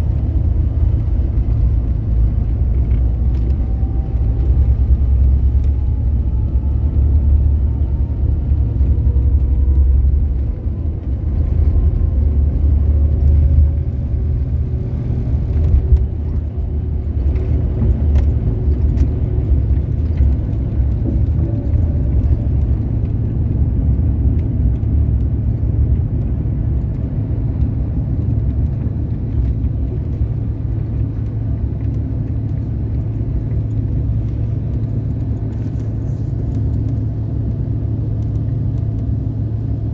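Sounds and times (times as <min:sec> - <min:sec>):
faint fan tones rising: 0:00.0 - 0:39.9
jet engines rumbling in cabin: 0:00.0 - 0:39.9.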